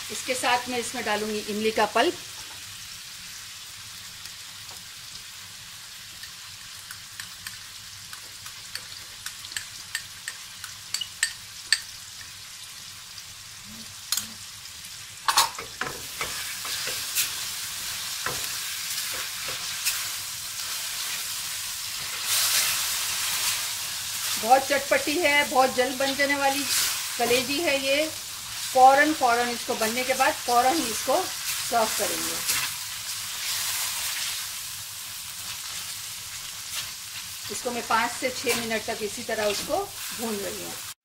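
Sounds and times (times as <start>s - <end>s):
meat sizzling in oil: 0.0s - 41.0s
spatula scraping a pan: 16.0s - 24.4s.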